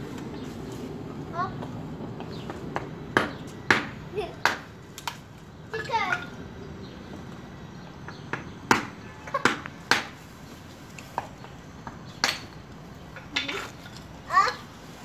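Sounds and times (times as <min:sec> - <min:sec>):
sharp taps and knocks: 0:01.6 - 0:06.3, 0:08.0 - 0:10.2.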